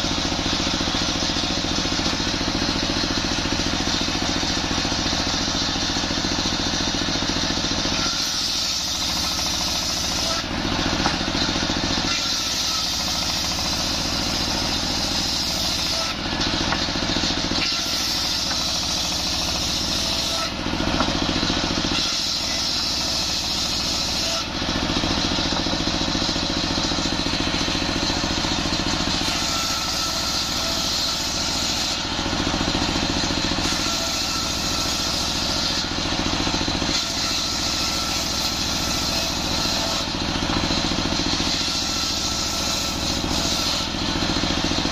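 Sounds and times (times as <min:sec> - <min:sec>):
circular saw cutting wood: 0:00.0 - 0:44.9
diesel engine chugging: 0:08.9 - 0:22.0, 0:23.3 - 0:30.1.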